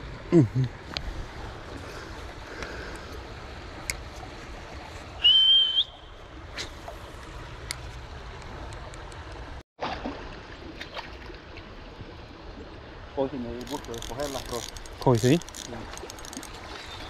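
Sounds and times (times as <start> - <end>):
water at the shore: 0.0 - 17.0
wind: 0.0 - 17.0
loud high whistle: 5.2 - 6.1.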